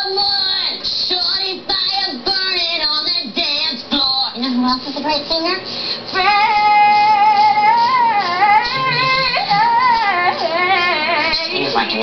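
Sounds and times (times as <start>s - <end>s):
high voice singing with vibrato: 3.9s - 12.0s.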